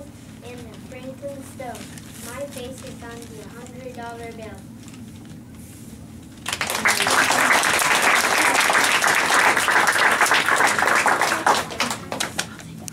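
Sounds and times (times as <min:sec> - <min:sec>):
audience applauding: 0:06.4 - 0:12.7.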